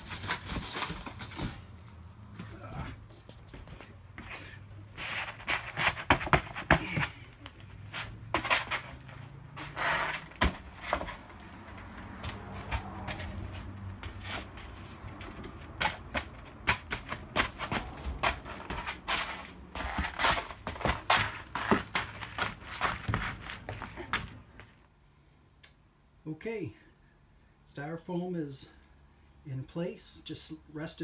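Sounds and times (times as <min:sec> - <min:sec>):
foam boards clicking and crinkling: 0:00.0 - 0:01.7, 0:05.0 - 0:24.8.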